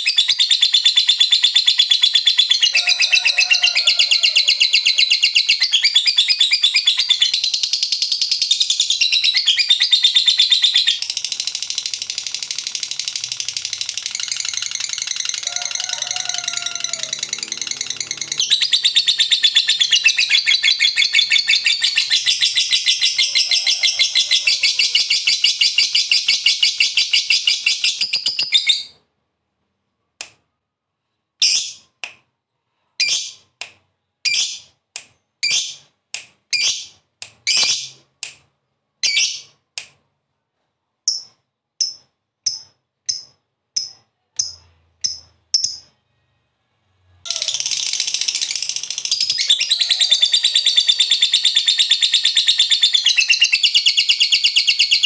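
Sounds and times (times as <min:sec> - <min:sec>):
lovebird rattling chatter: 0:10.8 - 0:19.7, 0:47.3 - 0:55.0.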